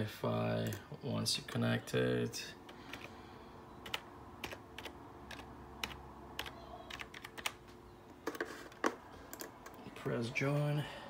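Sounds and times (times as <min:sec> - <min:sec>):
typing on computer keyboard: 0:02.9 - 0:03.1, 0:03.8 - 0:07.6, 0:08.3 - 0:09.8.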